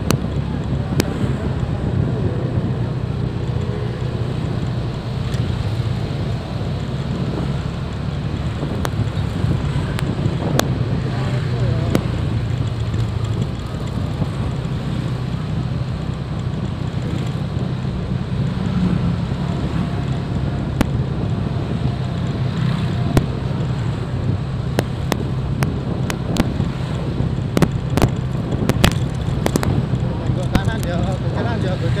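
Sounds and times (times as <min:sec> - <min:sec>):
motorbike engine drone: 0:00.0 - 0:32.0
road noise: 0:00.0 - 0:32.0
wind on microphone: 0:00.0 - 0:32.0
sharp clicks: 0:24.7 - 0:31.2.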